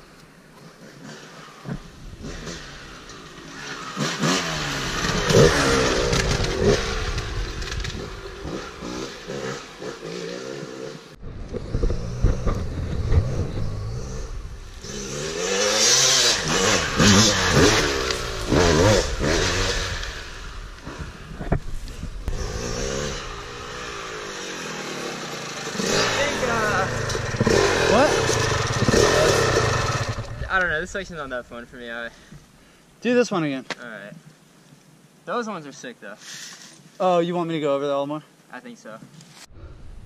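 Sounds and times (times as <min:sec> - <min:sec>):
dirt bike engine revving: 0:00.6 - 0:31.0.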